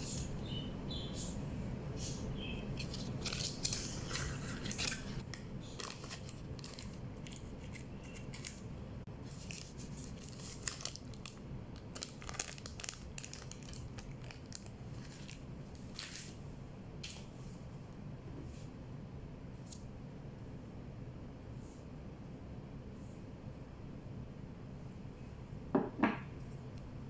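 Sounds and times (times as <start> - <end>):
paper wrapper crinkling: 2.8 - 16.4.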